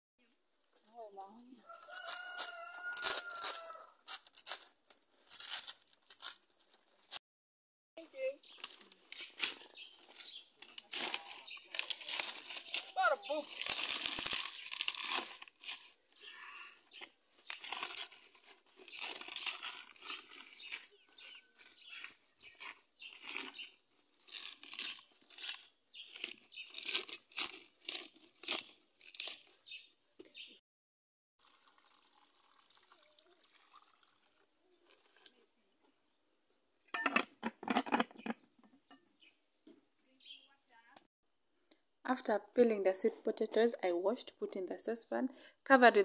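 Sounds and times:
leaves rustling and crinkling: 0.6 - 7.2, 8.0 - 29.9, 34.0 - 35.5.

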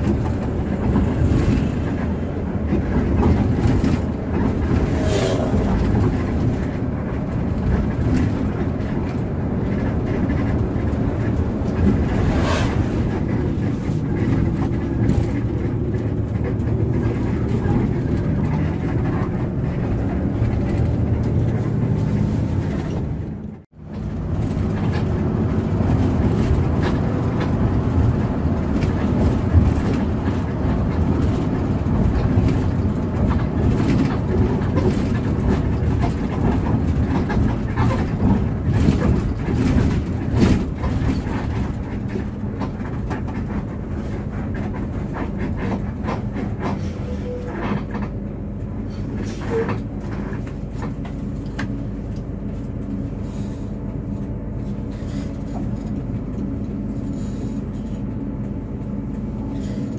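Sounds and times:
bus engine and road rumble: 0.0 - 59.9.

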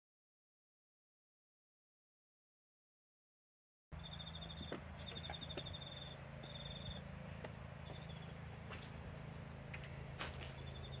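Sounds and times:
steady low hum: 3.9 - 11.0
high pulsed chirping: 4.0 - 7.1.

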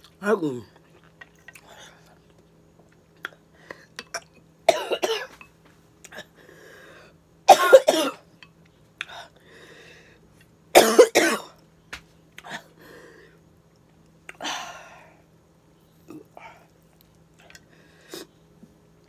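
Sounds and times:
breathing: 3.5 - 3.9, 6.4 - 7.2, 9.1 - 10.2, 12.7 - 13.4, 17.6 - 18.3
woman coughing: 4.7 - 5.3, 7.5 - 8.2, 10.8 - 11.5.

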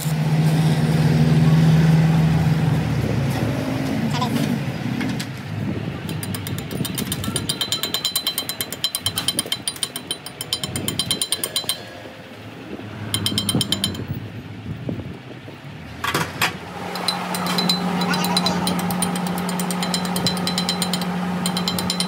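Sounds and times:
hammer tapping on metal: 6.0 - 12.0, 13.1 - 14.2, 16.9 - 22.0.

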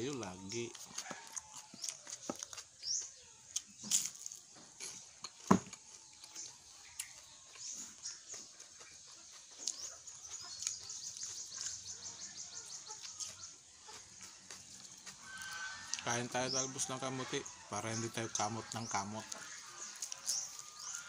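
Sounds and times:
chewing crisp fried food: 0.0 - 16.1, 18.4 - 21.0
small birds chirping: 0.0 - 21.0.

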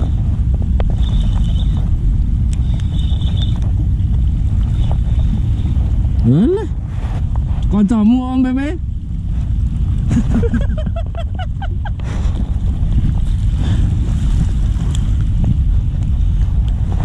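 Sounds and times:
wind rumbling on microphone: 0.0 - 17.0
sea waves washing: 9.1 - 17.0.

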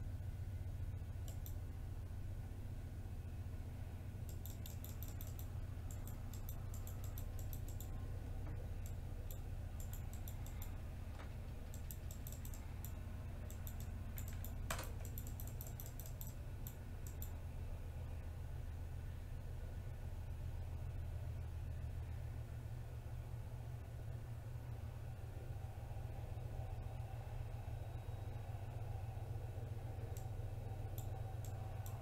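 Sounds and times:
steady low hum: 0.0 - 32.0
keyboard key clicks: 4.3 - 7.9, 8.8 - 17.3.

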